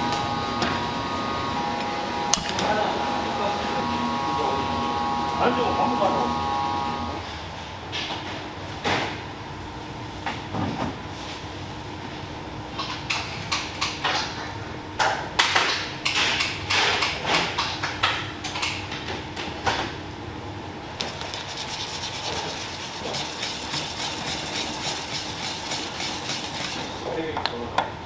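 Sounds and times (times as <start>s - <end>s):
whisk beating batter in bowl: 21.0s - 27.1s
spatula scraping metal bowl: 21.1s - 27.0s.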